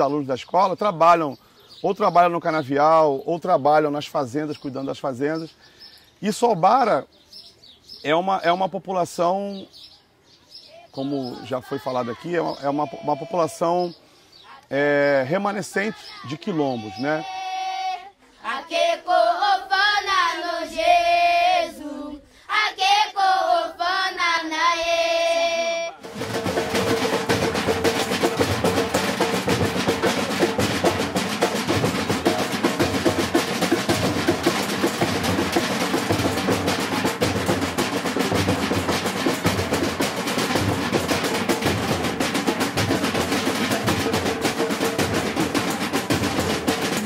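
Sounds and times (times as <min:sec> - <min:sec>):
children singing: 0:11.3 - 0:13.9, 0:15.8 - 0:26.2
drums playing fast rhythm: 0:26.0 - 0:47.0.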